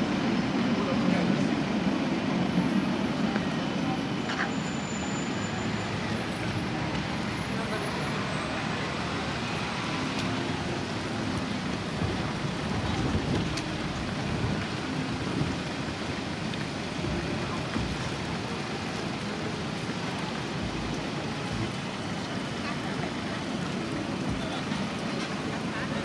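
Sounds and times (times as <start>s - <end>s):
cars passing: 0.0s - 26.0s
faint murmur of pedestrians: 0.0s - 26.0s
road traffic hiss: 0.0s - 26.0s.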